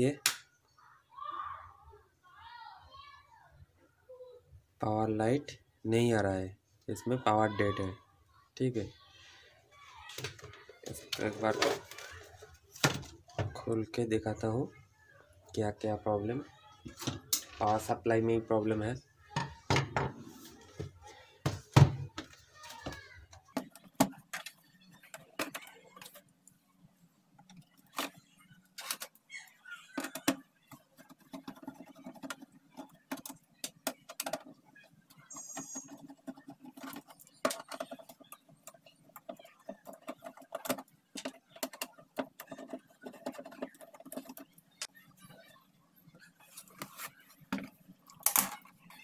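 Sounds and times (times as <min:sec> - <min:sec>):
light clicks taps and scrapes: 0:30.0 - 0:45.0.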